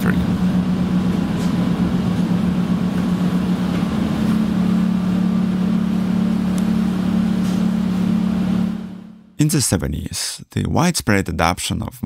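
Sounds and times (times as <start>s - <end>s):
motor-generator rumbling hum: 0.0s - 9.4s.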